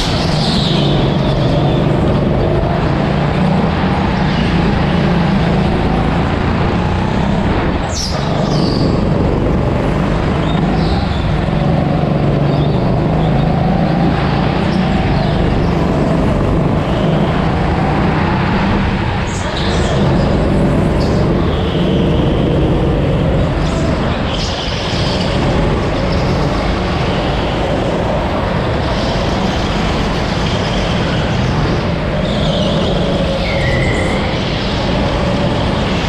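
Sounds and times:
go-kart engine droning: 0.0s - 36.0s
high tyre squeals: 0.0s - 36.0s.

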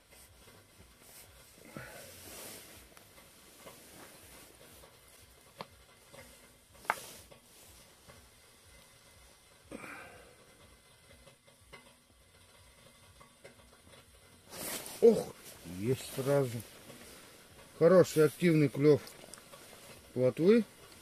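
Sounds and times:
rustles of handling gear: 0.0s - 8.2s, 14.5s - 21.0s.

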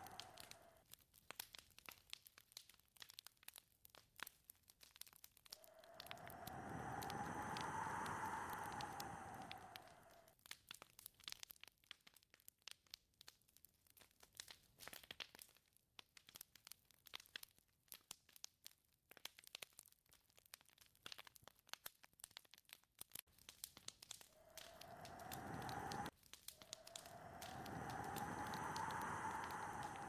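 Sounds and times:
whistling gust of wind: 5.7s - 10.2s, 24.4s - 26.1s, 26.7s - 30.0s.

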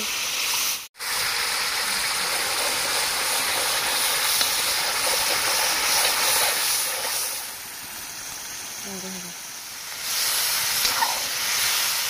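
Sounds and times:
gravy sizzling: 0.0s - 12.0s.

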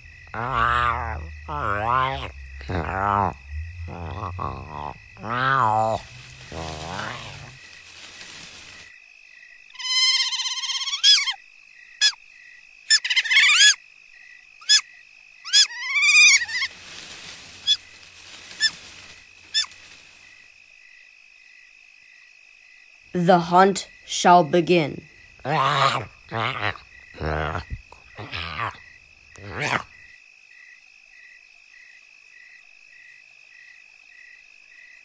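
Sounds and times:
low wavering animal cries: 0.0s - 7.7s, 9.8s - 11.4s, 12.9s - 13.8s, 15.5s - 16.8s, 25.4s - 28.8s
insect chirring: 0.0s - 35.0s
shrill animal calls and squeaks: 0.3s - 7.6s, 9.8s - 11.4s, 12.9s - 13.8s, 14.6s - 16.8s, 19.5s - 19.8s, 25.4s - 28.8s.

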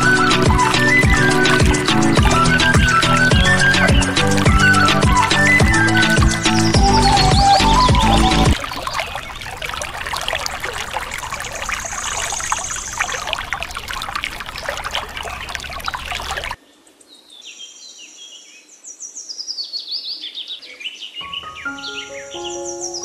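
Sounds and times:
birds chirping: 0.0s - 16.6s, 20.2s - 23.0s
water pouring and splashing: 0.0s - 16.6s.

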